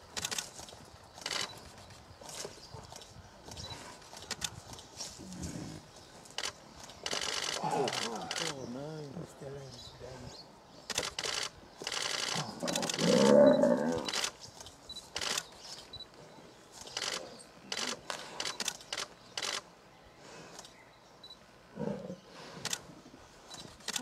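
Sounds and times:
camera shutter clicks: 6.4 - 8.6, 10.9 - 13.2, 13.9 - 14.4, 15.1 - 15.5, 16.8 - 19.7, 23.8 - 24.0
lion snarling and roaring: 12.4 - 14.1.

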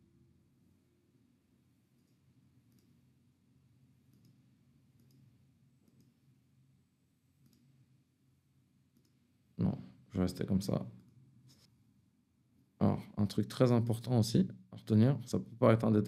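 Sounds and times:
faint computer mouse clicks: 2.0 - 3.0, 4.1 - 4.4, 5.0 - 6.2, 7.4 - 7.7, 8.9 - 9.2.

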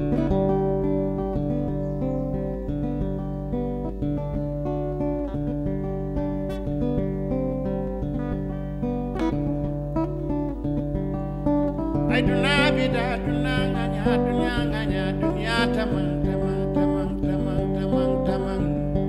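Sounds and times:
acoustic guitar: 0.0 - 19.0
person singing ornamented melody: 12.1 - 19.0.

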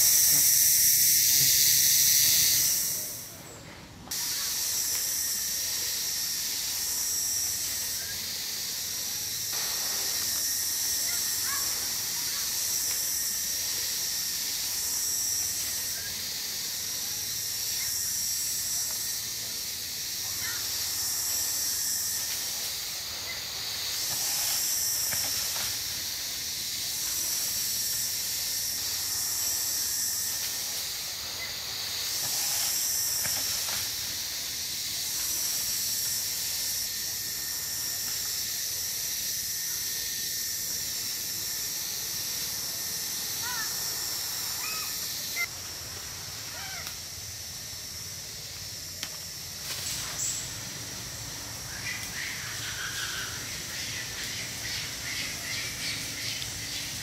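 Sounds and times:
insects chorus: 0.0 - 57.0.

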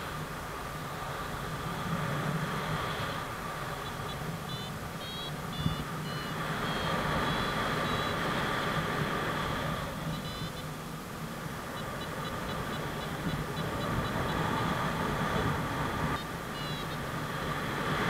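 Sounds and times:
variometer beeping: 3.0 - 8.8, 9.4 - 10.8, 11.7 - 17.2
wind rushing on microphone: 11.3 - 16.2.

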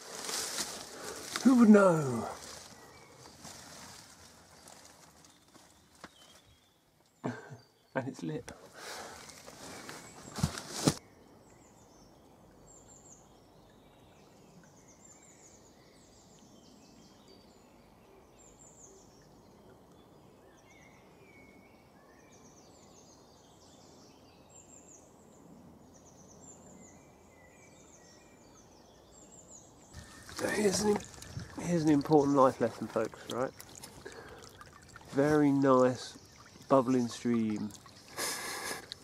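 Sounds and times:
handling rustle and knock: 0.0 - 6.6, 9.2 - 11.0, 30.0 - 38.0
birds chirping and trilling: 0.0 - 39.0
faint steady hiss: 27.6 - 39.0.

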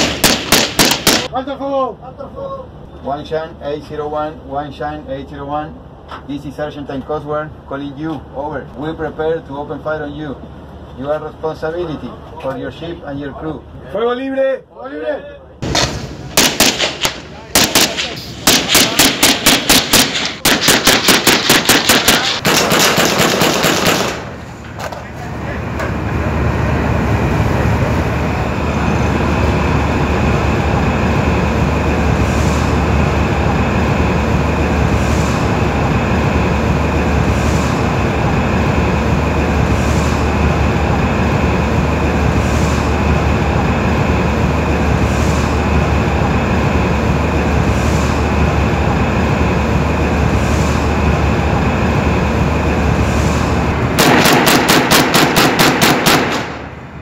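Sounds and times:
rapid sharp knocks: 0.0 - 1.3, 15.6 - 24.2, 54.0 - 56.5
ship engines humming: 0.0 - 3.0, 15.4 - 57.0.

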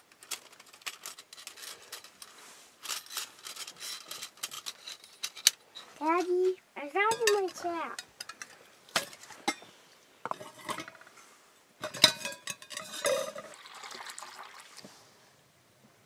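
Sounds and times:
metal pots clinking and scraping: 0.0 - 6.3, 7.0 - 14.6
water poured into pot: 12.9 - 14.9.

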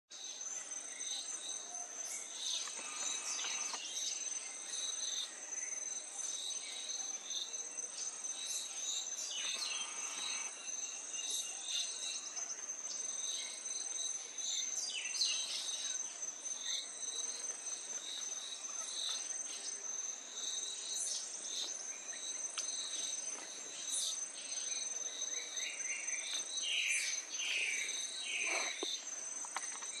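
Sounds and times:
high-pitched insect trill: 0.2 - 30.0
bird calls: 2.1 - 4.0.

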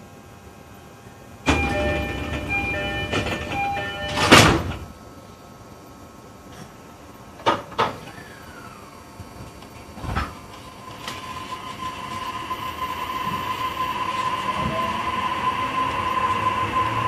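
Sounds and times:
short chime tones: 1.5 - 4.5
train door hiss: 10.9 - 17.0
rushing noise: 11.3 - 17.0.

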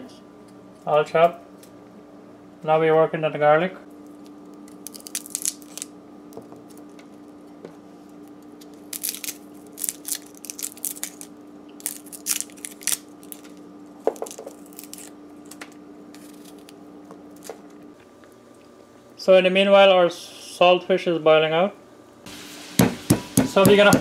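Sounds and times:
steady low hum: 0.0 - 24.0
garlic skin crackling: 4.1 - 6.0, 8.6 - 17.5.

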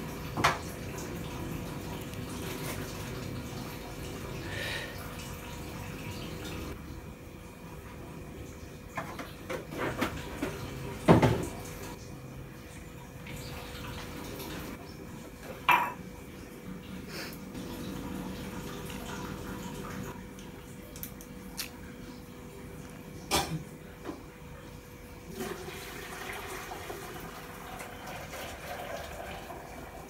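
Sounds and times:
dishes and utensils clinking: 15.5 - 16.0.

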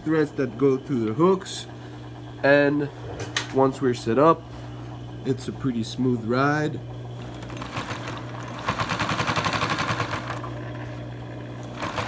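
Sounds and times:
steady hum: 0.0 - 12.0
sewing machine clattering: 7.2 - 10.6, 11.6 - 12.0.

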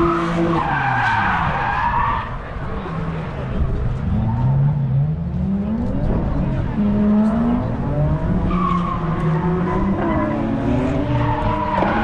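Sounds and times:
car engine revving: 2.8 - 12.0.

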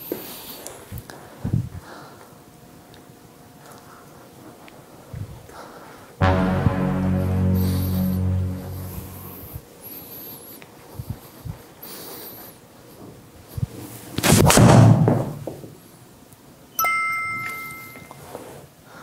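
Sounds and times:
electronic two-tone chime: 6.2 - 9.5
background music: 6.2 - 9.6.

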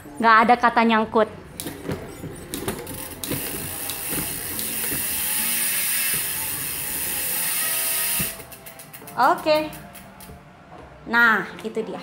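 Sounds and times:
bike freehub clicking buzz: 2.9 - 10.2.

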